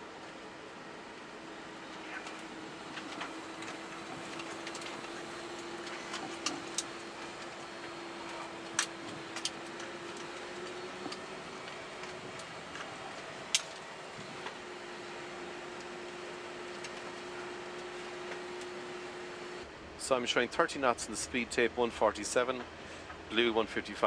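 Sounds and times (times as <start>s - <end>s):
steady hum tone: 0.0s - 23.5s.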